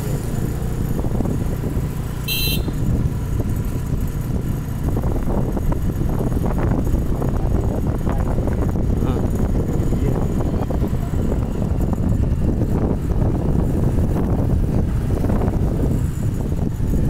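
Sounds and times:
road and vehicle rumble: 0:00.0 - 0:17.0
short high-pitched horn toot: 0:02.3 - 0:02.8.

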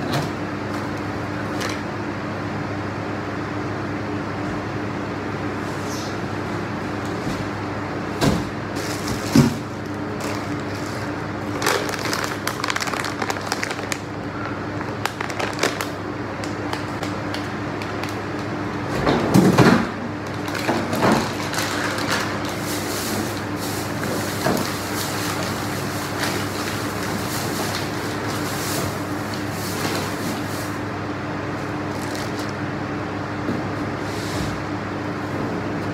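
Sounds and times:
steady electric hum: 0:00.0 - 0:35.9
plastic bags rustling: 0:08.7 - 0:18.5, 0:20.2 - 0:30.8, 0:31.8 - 0:32.6.

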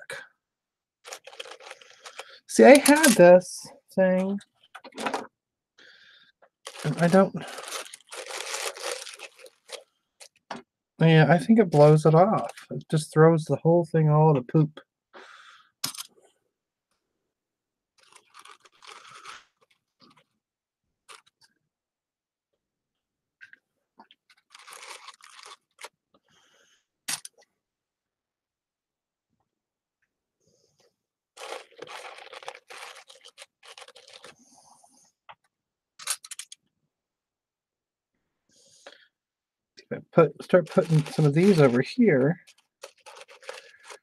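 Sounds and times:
paper rustling and crinkling: 0:01.0 - 0:03.2, 0:06.6 - 0:10.4, 0:18.0 - 0:20.2, 0:24.3 - 0:26.0, 0:31.4 - 0:34.6, 0:40.4 - 0:44.0.

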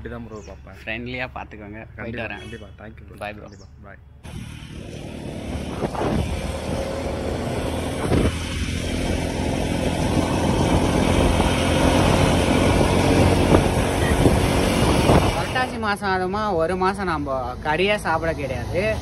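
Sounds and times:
road and wind noise: 0:00.0 - 0:19.0
motorcycle engine running: 0:04.2 - 0:15.9.

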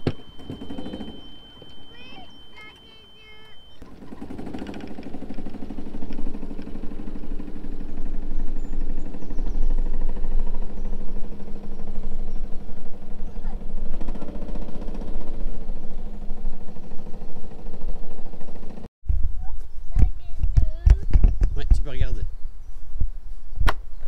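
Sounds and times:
golf cart running: 0:00.0 - 0:18.9.

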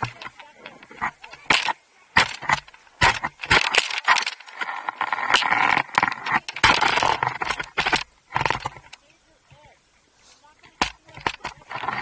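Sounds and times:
sharp clicks and knocks: 0:00.0 - 0:09.7, 0:10.6 - 0:12.0
skis scraping on snow: 0:04.0 - 0:08.4, 0:10.2 - 0:12.0.

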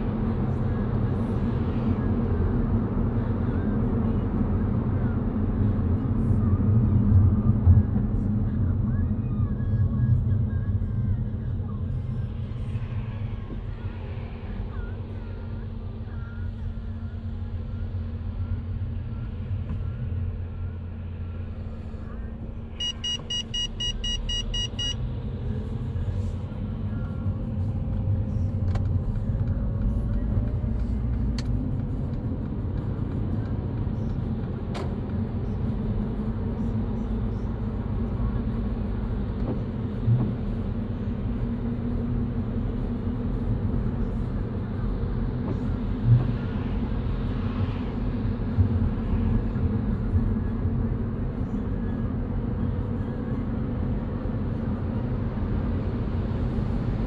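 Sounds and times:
car road and engine rumble: 0:00.0 - 0:57.0
rapid high beeps: 0:22.8 - 0:25.0.

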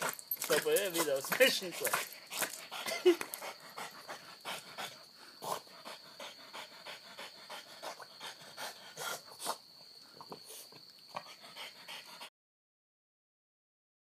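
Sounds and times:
dog panting quickly: 0:01.0 - 0:09.6, 0:10.5 - 0:12.3.

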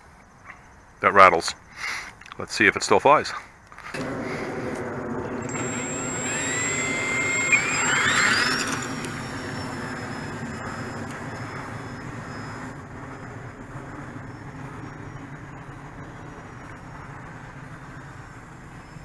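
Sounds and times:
model plane motor whine: 0:04.0 - 0:17.1.

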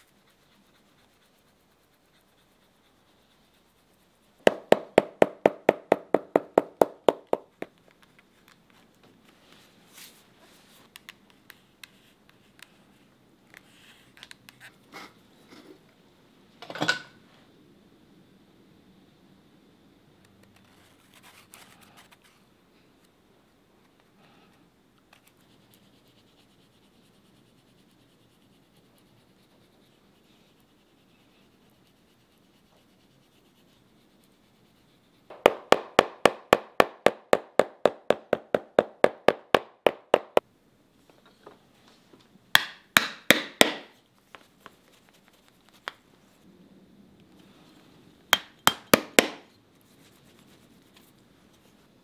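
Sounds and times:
hammer striking shoe sole: 0:04.5 - 0:07.7, 0:35.3 - 0:40.4, 0:42.6 - 0:43.9, 0:48.4 - 0:49.5.

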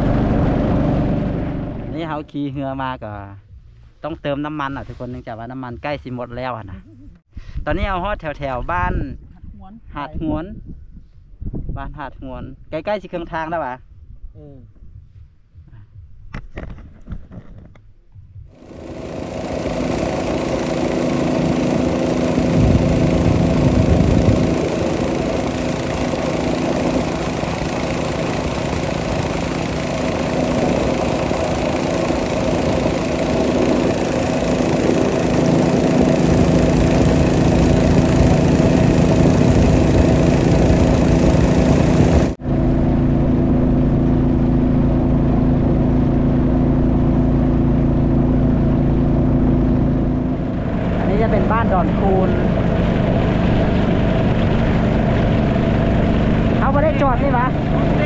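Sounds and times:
boat engine running: 0:00.0 - 0:04.4, 0:17.0 - 0:58.0.

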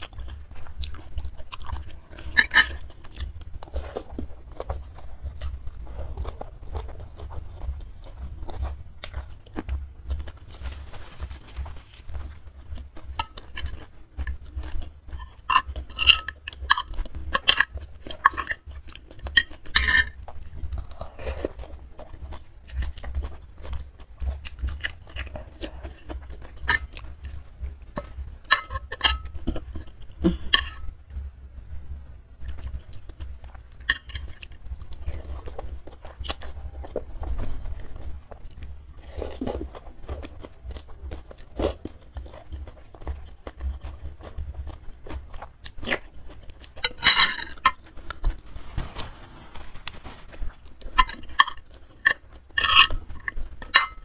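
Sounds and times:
steady low rumble: 0:20.2 - 0:41.4.

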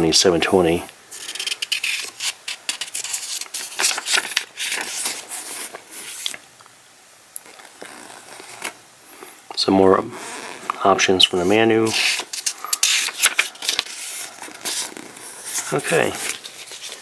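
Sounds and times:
paper pages rustling and turning: 0:01.2 - 0:06.4, 0:07.4 - 0:08.8, 0:10.2 - 0:17.0.

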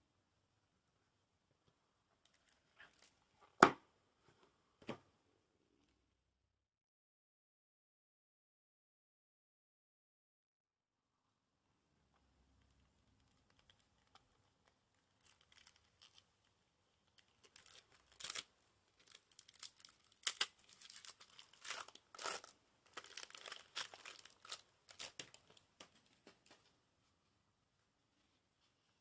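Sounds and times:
cellophane wrap crinkling: 0:12.6 - 0:16.3, 0:17.0 - 0:26.2.

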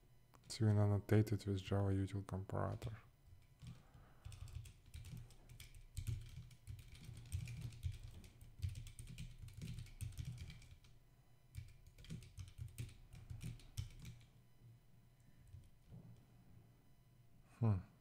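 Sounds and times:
computer keyboard typing: 0:03.4 - 0:14.3, 0:15.4 - 0:15.9.

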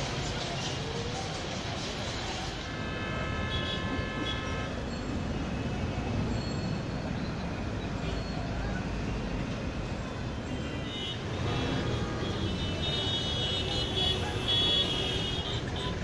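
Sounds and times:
street traffic: 0:00.0 - 0:16.0
vehicle horn: 0:02.8 - 0:04.8.

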